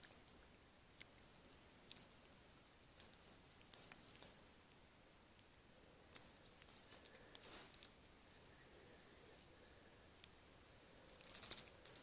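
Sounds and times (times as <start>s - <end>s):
fishing tackle clicking and rattling: 11.1s - 12.0s.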